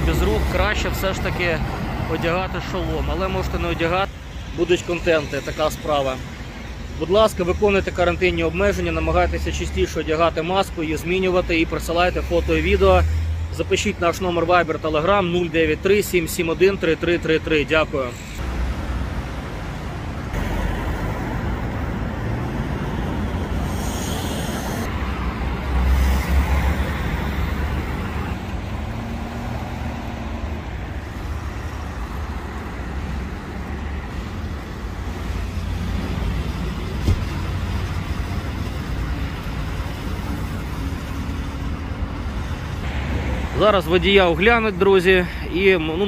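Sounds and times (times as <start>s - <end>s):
traffic rumble: 0.0s - 46.0s.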